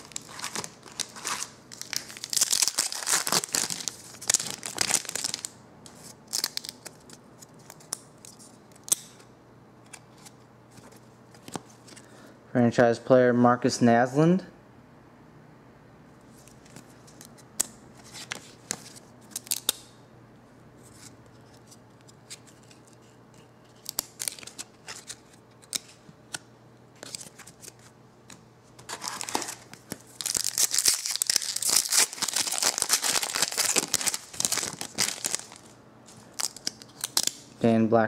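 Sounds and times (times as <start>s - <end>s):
plastic wrapper crinkling and tearing: 0.0s - 8.9s, 23.8s - 25.8s, 28.9s - 37.4s
cards being flipped through: 27.0s - 37.4s.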